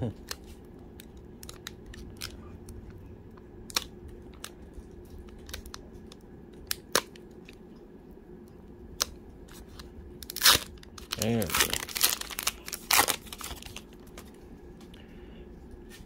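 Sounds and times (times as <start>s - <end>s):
steady low hum: 0.0s - 16.0s
foil card pack crinkling: 9.5s - 14.4s.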